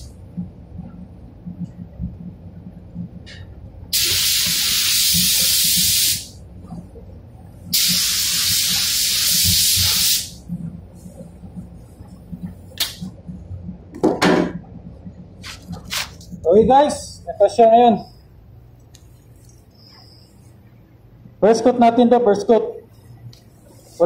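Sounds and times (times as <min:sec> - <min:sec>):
steady low hum: 0:00.0 - 0:24.0
spray gun hissing: 0:04.0 - 0:06.3, 0:07.7 - 0:10.4.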